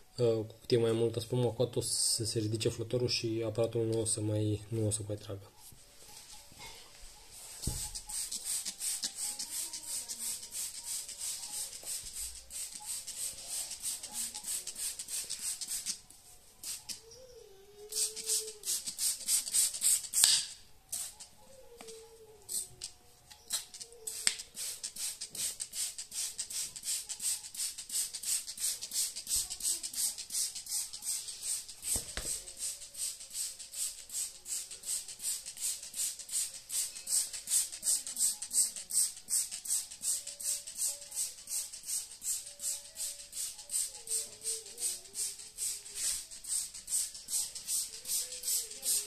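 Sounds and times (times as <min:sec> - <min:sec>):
spray bottle spritzes: 0:07.6 - 0:16.0, 0:16.6 - 0:17.0, 0:17.9 - 0:21.3, 0:22.5 - 0:22.7, 0:23.5 - 0:49.0.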